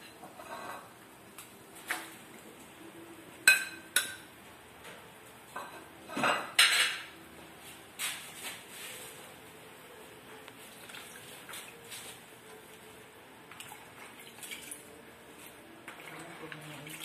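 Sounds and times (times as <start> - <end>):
kitchenware clinking against a wok: 5.6 - 7.1.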